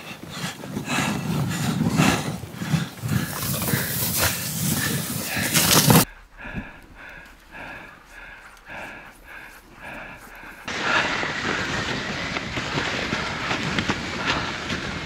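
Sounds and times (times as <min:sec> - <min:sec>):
dog panting: 0:00.0 - 0:10.7
sled runners scraping snow: 0:00.0 - 0:15.0.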